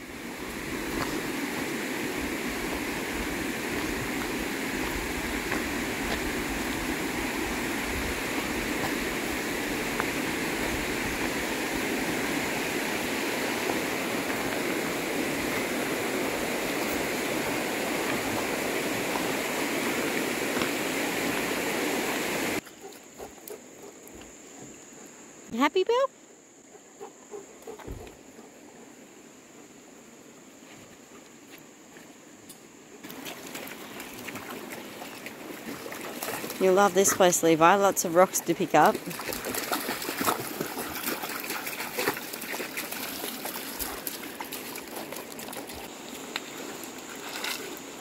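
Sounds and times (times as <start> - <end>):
creek water rushing over rocks: 0.0 - 22.6, 33.0 - 48.0.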